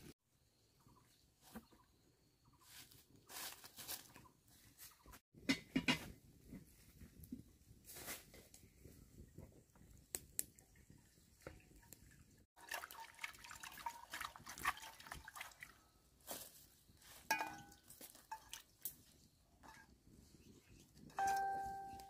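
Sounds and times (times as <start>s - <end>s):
water drips: 10.2s - 15.8s, 17.3s - 19.0s
hands splashing water in metal pot: 11.4s - 15.8s, 17.3s - 18.9s
short ringing tone: 21.2s - 22.0s.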